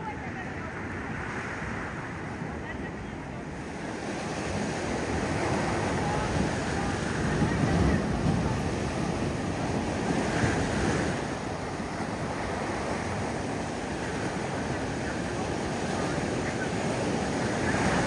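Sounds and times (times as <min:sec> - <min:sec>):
surf crashing on rocks: 0:00.0 - 0:18.0
foaming water washing: 0:04.0 - 0:18.0.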